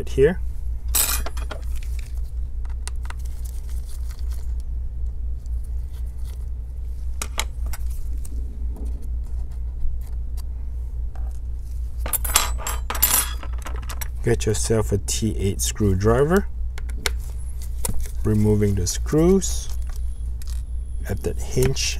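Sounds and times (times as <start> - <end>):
steady low hum: 0.0 - 21.9
small metal parts clinking: 0.9 - 2.0, 12.0 - 14.8.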